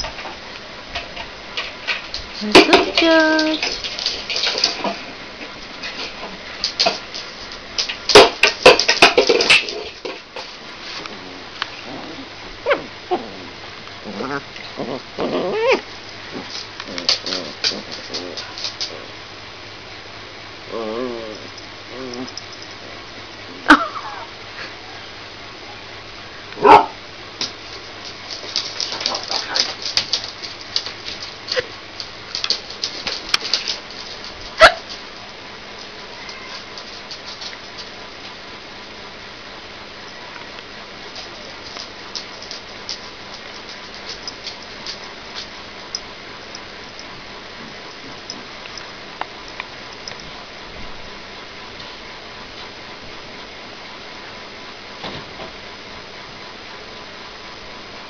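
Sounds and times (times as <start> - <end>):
scratchy clicks and rustles on bedding: 15.9 - 19.0, 27.4 - 38.4, 40.4 - 50.7
puppy yipping: 34.6 - 34.9.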